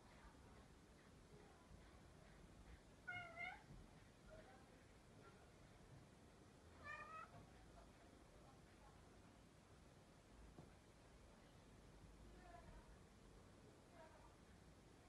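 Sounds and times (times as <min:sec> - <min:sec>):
kitten meowing: 0:03.1 - 0:03.6, 0:06.8 - 0:07.3.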